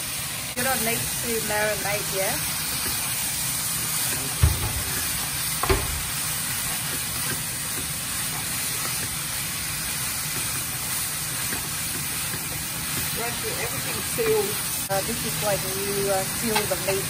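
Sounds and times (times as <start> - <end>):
food sizzling in a pan: 0.0 - 17.0
knocks: 4.4 - 5.0, 5.6 - 6.1.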